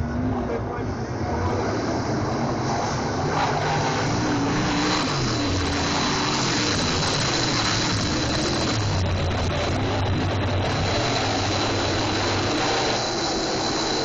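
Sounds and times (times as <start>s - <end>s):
race car engines running hard: 0.0s - 14.0s.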